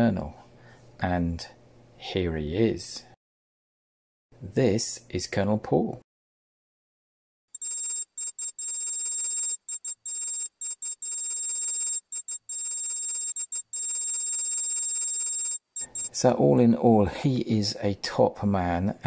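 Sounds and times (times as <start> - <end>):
high-pitched electronic tone: 7.6 - 16.1.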